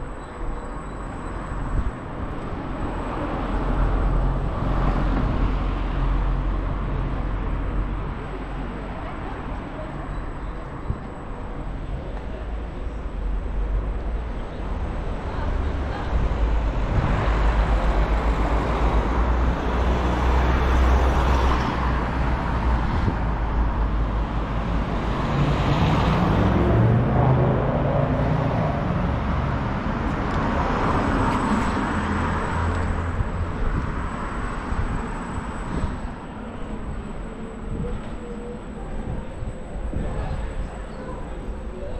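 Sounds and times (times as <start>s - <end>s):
car traffic: 0.0s - 41.9s
wind rushing over microphone: 14.8s - 20.5s, 21.1s - 38.2s, 38.8s - 41.9s.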